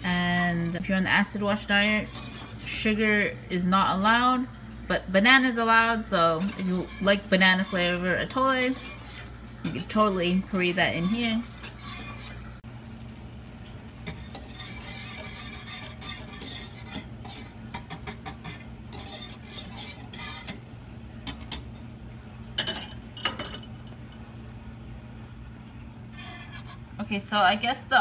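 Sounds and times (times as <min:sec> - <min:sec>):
whisk scraping and clinking in pot: 0:00.0 - 0:04.6, 0:05.2 - 0:12.6, 0:14.0 - 0:20.6, 0:21.2 - 0:21.9, 0:26.1 - 0:26.9
steady low hum: 0:00.0 - 0:28.0.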